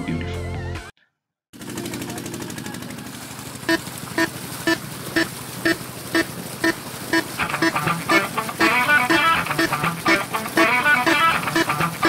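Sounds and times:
jet ski engine running: 1.6 - 12.0
background music beat: 7.4 - 12.0.

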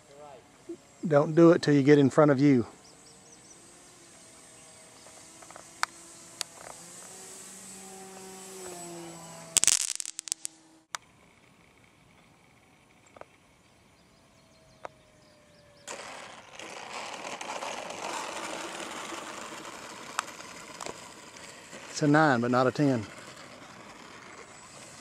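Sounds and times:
model plane motor humming: 0.0 - 25.0
loud crackling clicks: 5.4 - 6.8, 9.6 - 11.0, 15.9 - 24.9.

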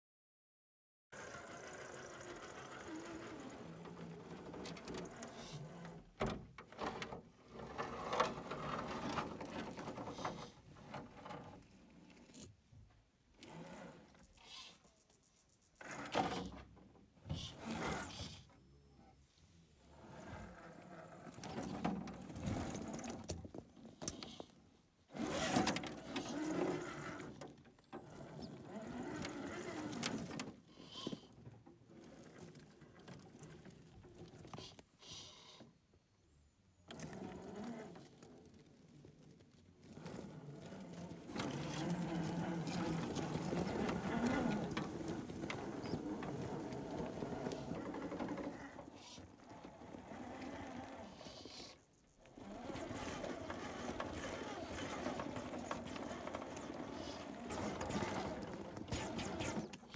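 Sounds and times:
toy car electric motor whirring: 1.2 - 3.7, 52.3 - 59.9.

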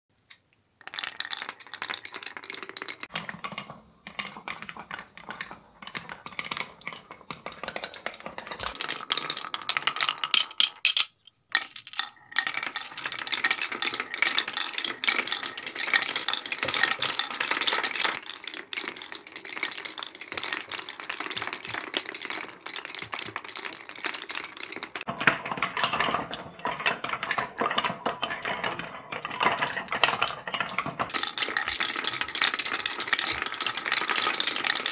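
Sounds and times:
marbles rattling on wooden tracks: 0.8 - 34.9.

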